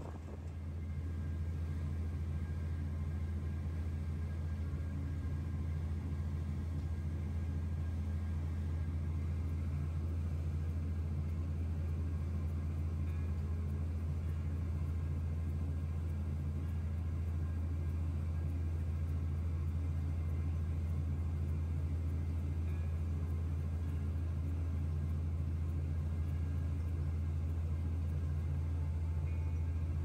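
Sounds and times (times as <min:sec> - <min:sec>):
vehicle engine rumble: 0:00.0 - 0:18.6.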